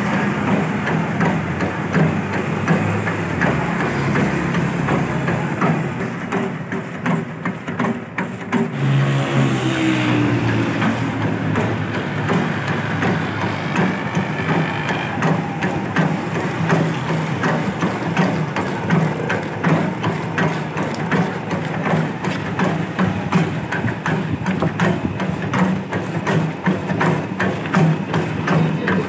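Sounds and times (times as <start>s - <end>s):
pestle knocking and scraping: 0.0s - 9.6s, 10.2s - 29.0s
grinding machine motor humming: 8.6s - 29.0s.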